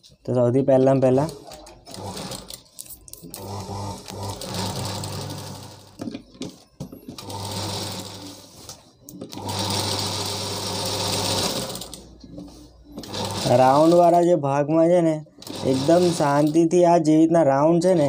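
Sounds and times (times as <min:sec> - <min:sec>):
sewing machine stitching: 0:01.0 - 0:02.7, 0:03.3 - 0:06.0, 0:07.1 - 0:08.4, 0:09.2 - 0:12.0, 0:13.0 - 0:14.2, 0:15.4 - 0:16.6.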